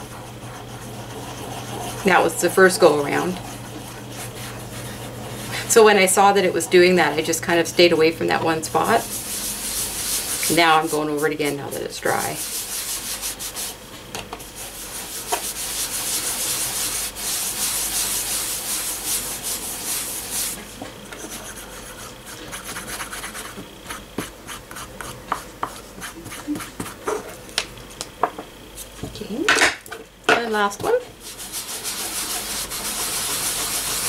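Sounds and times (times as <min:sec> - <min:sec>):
sponge rubbing paper: 0:00.0 - 0:05.5, 0:08.4 - 0:13.8, 0:14.5 - 0:20.6, 0:21.2 - 0:23.6, 0:31.2 - 0:34.0.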